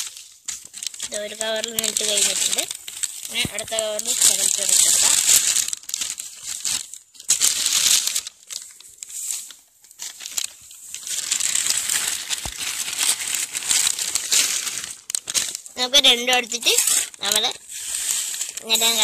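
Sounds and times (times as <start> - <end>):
soil poured by hand: 0.0 - 9.6, 16.5 - 19.0
plastic bag crinkling: 0.0 - 19.0.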